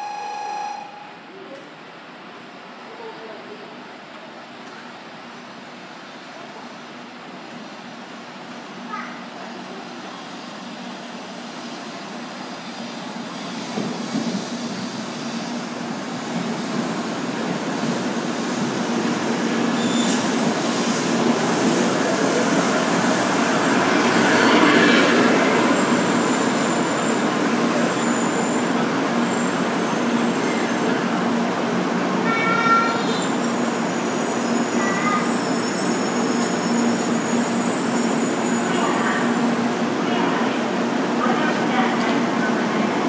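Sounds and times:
train rolling and air noise: 1.3s - 43.0s.

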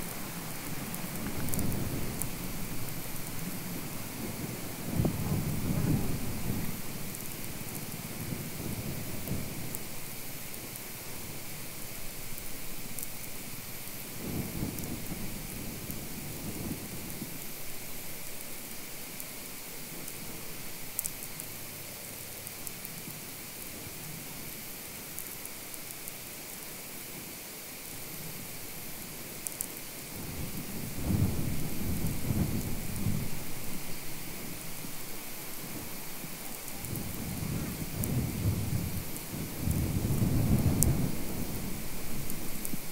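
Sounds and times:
faint high ticks: 0.0s - 3.7s, 11.7s - 16.1s, 17.0s - 23.7s, 24.9s - 26.2s, 29.0s - 29.9s, 35.7s - 41.1s, 42.2s - 42.9s
static hiss and crackle: 0.0s - 42.9s.

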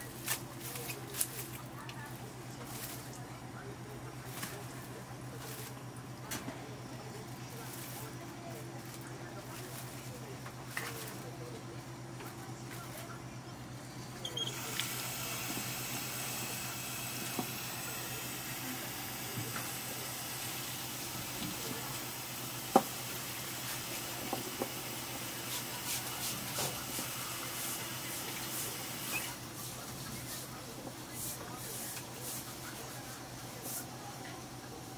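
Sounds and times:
steady low hum: 0.0s - 34.9s
kitchen tap water running: 14.5s - 29.4s.

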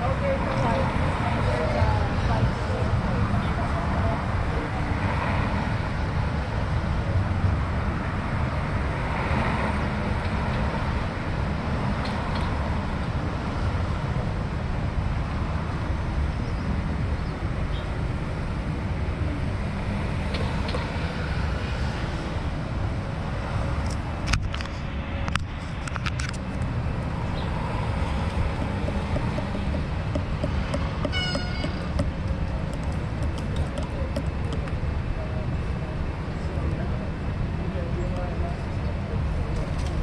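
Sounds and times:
wind and road noise: 0.0s - 40.0s.

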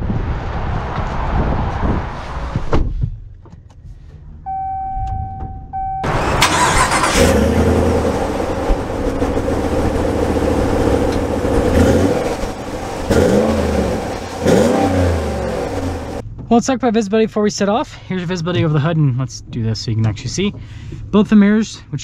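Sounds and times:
thump: 2.5s - 3.2s
car cabin chime: 4.5s - 6.1s
truck engine starting and idling: 5.8s - 16.2s.

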